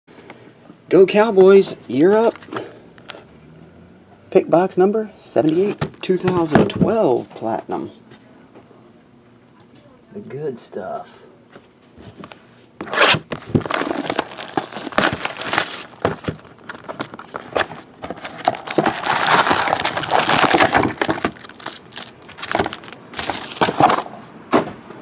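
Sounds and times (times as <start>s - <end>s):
plastic and foil packaging crinkling: 13.3s - 24.0s.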